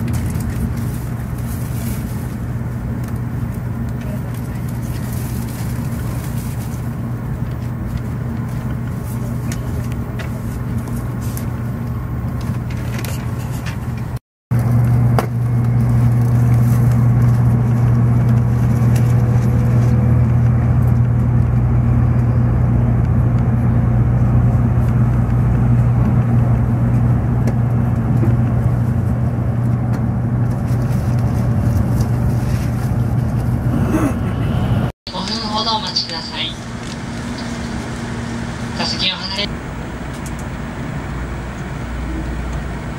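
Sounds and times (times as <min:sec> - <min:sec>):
train interior rumble: 0:00.0 - 0:42.9.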